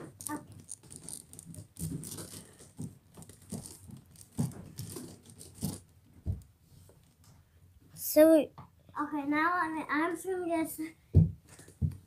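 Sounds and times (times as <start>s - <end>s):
fabric rustling and crinkling: 0.0s - 6.4s.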